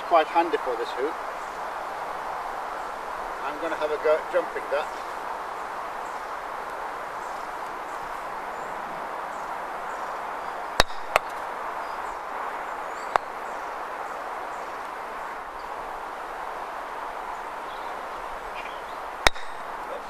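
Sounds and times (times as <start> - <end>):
faint birdsong: 0.0 - 20.0
outdoor background hiss: 0.0 - 20.0
croquet mallet striking ball: 10.8 - 11.4, 19.3 - 19.7.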